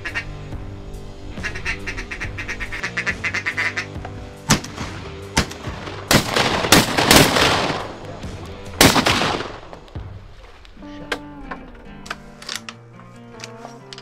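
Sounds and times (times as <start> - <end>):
shotgun shots with echo: 4.5 - 8.0, 8.8 - 9.7.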